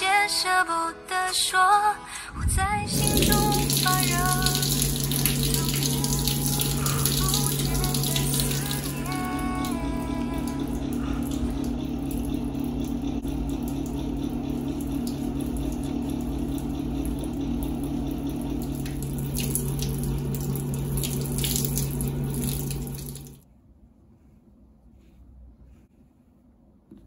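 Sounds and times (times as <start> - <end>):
low hum: 2.1 - 26.7
tap water running into sink: 3.0 - 23.4.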